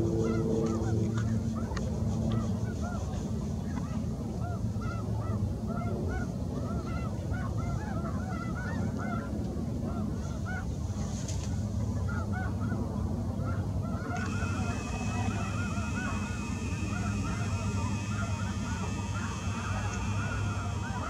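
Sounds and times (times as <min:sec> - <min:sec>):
flock of birds calling: 0:13.9 - 0:21.0
low steady rumble: 0:14.2 - 0:21.0.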